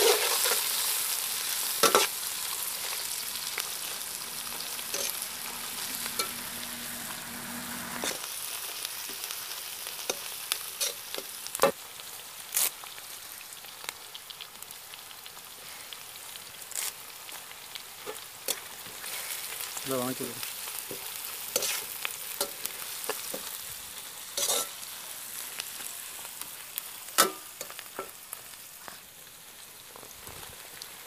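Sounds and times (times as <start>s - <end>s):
onions sizzling in oil: 0.0s - 31.0s
metal ladle scraping pan: 3.0s - 8.2s.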